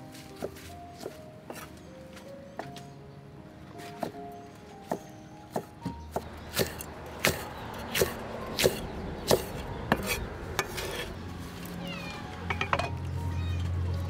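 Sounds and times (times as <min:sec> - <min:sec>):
cleaver chopping on wooden board: 0:04.8 - 0:10.9.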